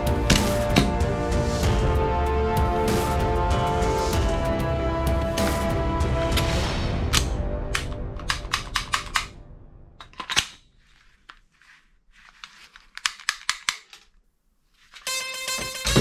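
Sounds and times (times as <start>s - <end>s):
music: 0.0s - 10.0s, 15.0s - 16.0s
toy pistol plastic clicks: 13.0s - 14.1s.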